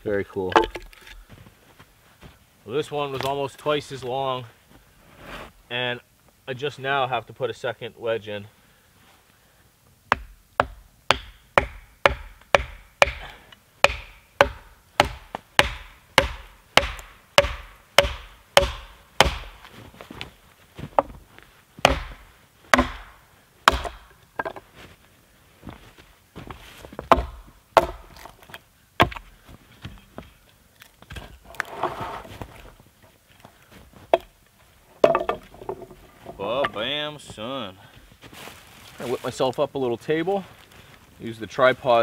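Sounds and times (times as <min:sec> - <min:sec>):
axe striking wooden wedges: 0:00.4 - 0:01.2, 0:10.1 - 0:19.7, 0:21.8 - 0:24.6, 0:27.1 - 0:29.2, 0:35.0 - 0:35.9.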